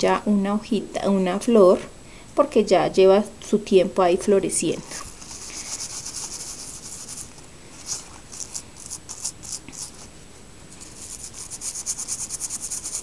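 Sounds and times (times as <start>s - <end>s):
toothbrush scrubbing leaves: 5.0s - 10.1s, 10.8s - 13.0s.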